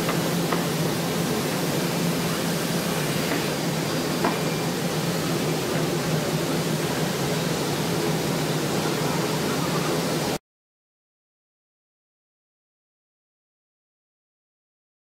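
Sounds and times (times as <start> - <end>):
air extraction rushing hiss: 0.0 - 10.4.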